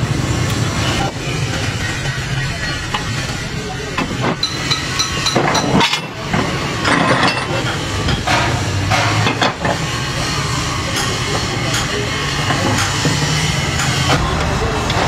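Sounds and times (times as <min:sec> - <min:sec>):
steel tools clinking on metal: 0:04.0 - 0:09.7.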